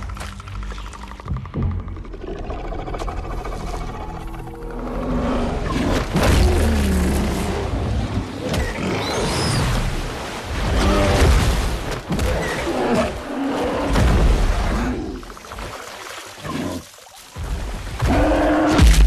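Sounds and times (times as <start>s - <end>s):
bear growling and roaring: 1.1s - 9.1s.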